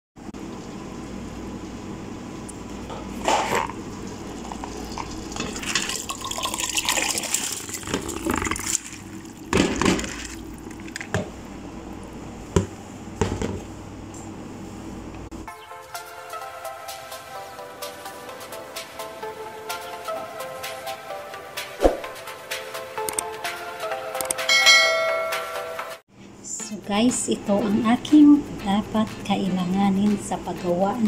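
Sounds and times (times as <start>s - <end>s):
steady low hum: 0.2s - 15.5s
wet rice sliding and splashing: 6.6s - 9.4s.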